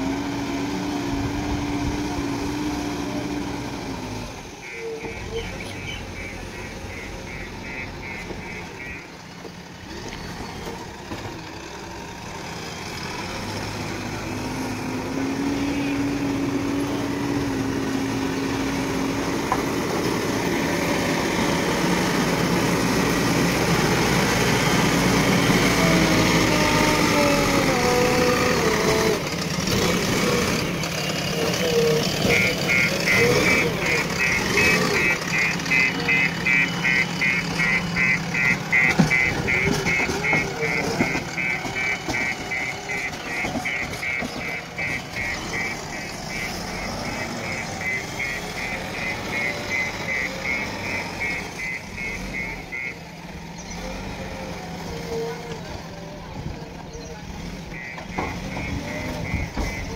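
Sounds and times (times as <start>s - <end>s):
diesel engine revving: 0.0s - 59.9s
reversing alarm beeping: 4.6s - 9.1s, 31.5s - 53.0s, 57.7s - 59.9s.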